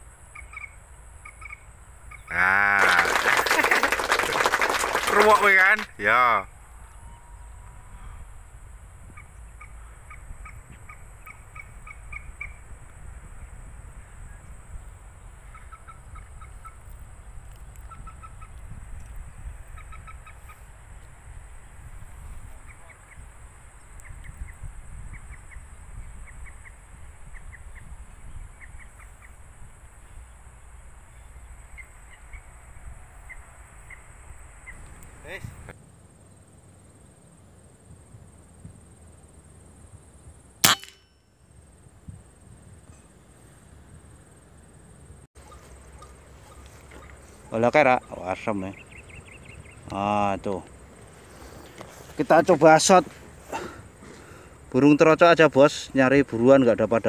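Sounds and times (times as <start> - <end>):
high insect drone: 0.0 - 57.0
bird calling in clipped notes: 15.5 - 19.2.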